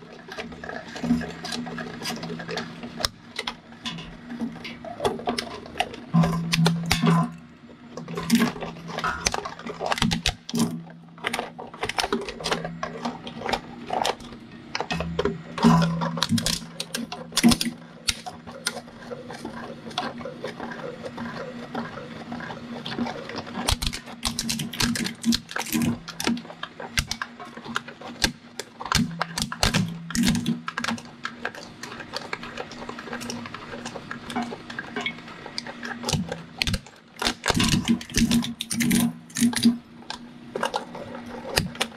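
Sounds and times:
cracks and snaps: 8.0s - 18.8s, 23.6s - 41.9s.

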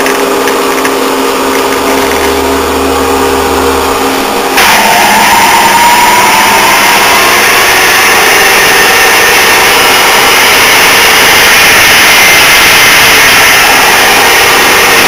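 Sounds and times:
metal lathe running: 0.0s - 15.0s.

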